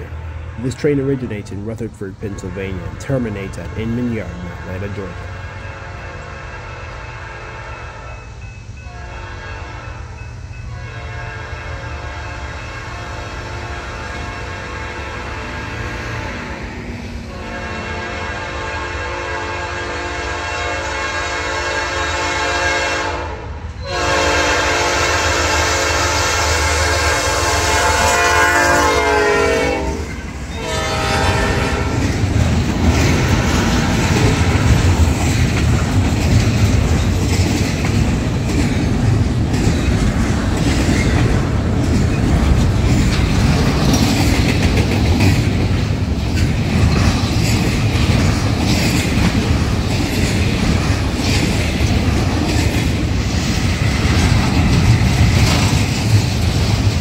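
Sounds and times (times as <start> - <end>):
locomotive air horn: 0.0 - 1.5, 2.2 - 16.4, 17.2 - 32.1
train wheel clatter and rumble: 23.7 - 57.0.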